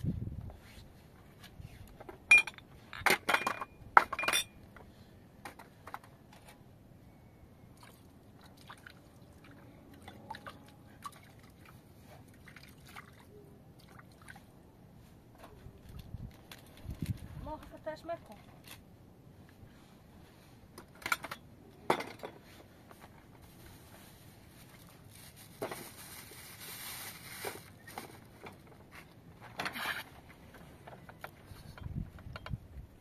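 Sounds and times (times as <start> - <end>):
glasses clinking on metal tray: 3.3 - 4.5.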